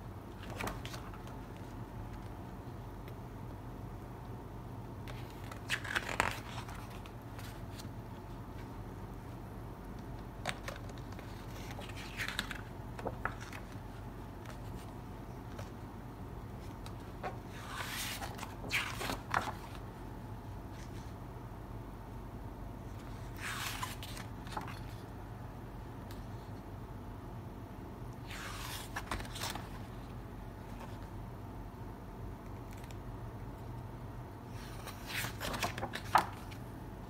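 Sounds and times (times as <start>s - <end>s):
book pages turning: 0.4s - 3.2s, 5.0s - 8.7s, 9.9s - 15.9s, 16.5s - 19.9s, 22.9s - 25.1s, 28.2s - 29.9s, 32.5s - 33.0s, 34.6s - 36.6s.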